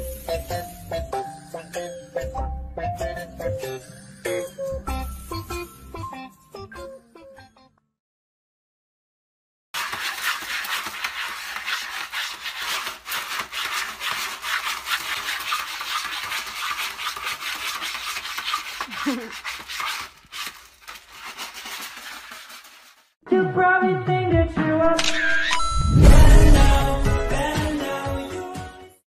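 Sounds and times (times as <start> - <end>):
cat paws raking litter pellets: 9.8 - 23.2.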